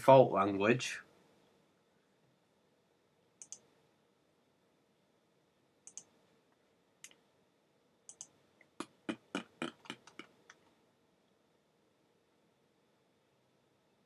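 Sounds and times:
computer mouse clicking: 0:03.4 - 0:03.7, 0:05.8 - 0:06.2, 0:08.1 - 0:08.4, 0:09.4 - 0:10.8.

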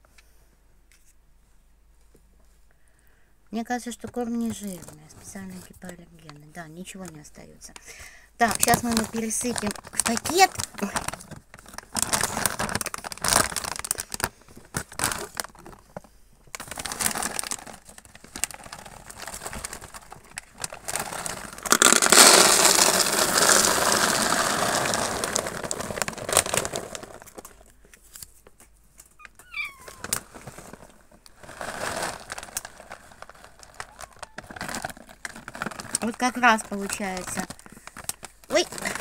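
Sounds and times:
plastic bag crinkling: 0:04.4 - 0:39.0
dry kibble pouring into bin: 0:08.4 - 0:15.6, 0:16.6 - 0:27.6, 0:29.6 - 0:39.0
cat meowing: 0:29.2 - 0:30.2, 0:33.8 - 0:34.6.

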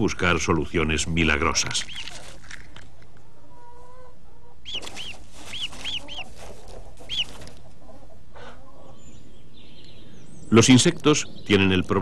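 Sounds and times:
chick peeping: 0:03.2 - 0:12.0.

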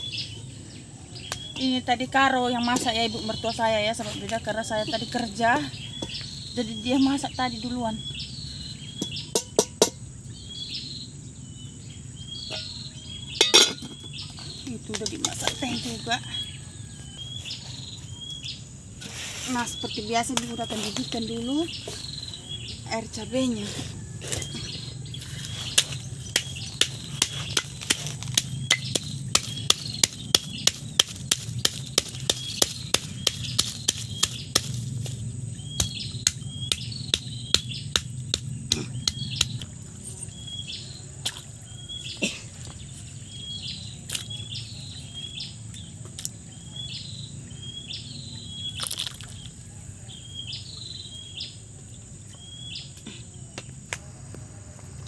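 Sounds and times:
bird chirping: 0:00.0 - 0:54.2
stone pestle knocking in mortar: 0:25.7 - 0:34.8, 0:35.8 - 0:39.6.

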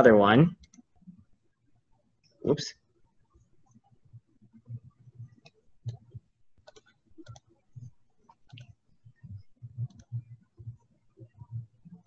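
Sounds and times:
computer mouse clicking: 0:00.6 - 0:00.9, 0:05.2 - 0:12.0
soft low thumps: 0:07.2 - 0:12.0.

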